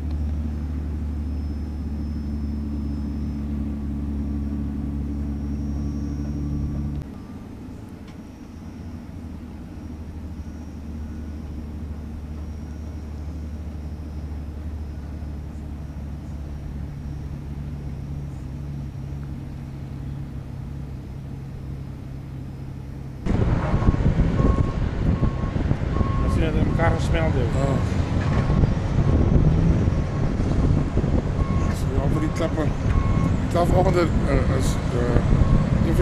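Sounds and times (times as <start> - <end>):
engine droning steadily: 0.0 - 36.0
wind-buffeted rumble: 0.0 - 36.0
short beep: 1.2 - 3.9.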